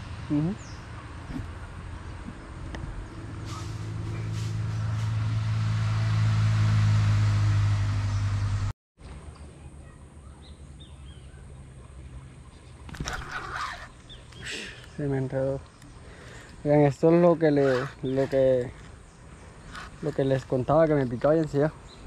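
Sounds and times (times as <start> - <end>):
motor engine droning: 0.0 - 8.7.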